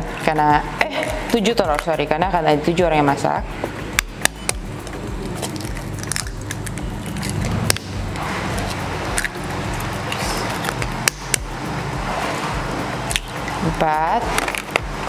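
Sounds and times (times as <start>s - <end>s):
eggshells cracking on a bowl: 5.4s - 7.9s.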